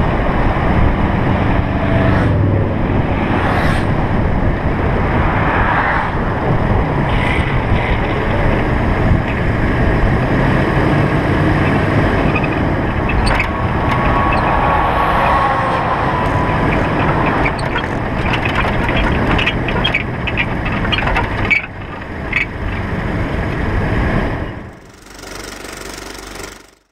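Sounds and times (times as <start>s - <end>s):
wind on microphone: 0.0s - 24.8s
road noise: 0.0s - 26.8s
truck driving past: 0.8s - 26.8s
clicks and knocks: 11.6s - 23.6s.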